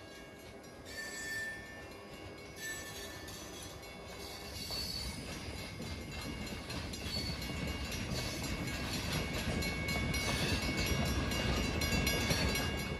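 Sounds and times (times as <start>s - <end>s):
train wheels rumbling and clicking: 0.0s - 12.9s.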